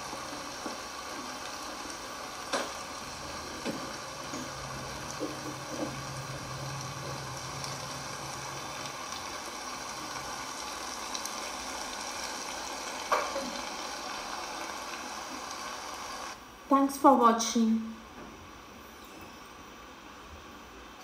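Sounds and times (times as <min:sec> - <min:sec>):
gravy sizzling in a pan: 0:00.0 - 0:16.4.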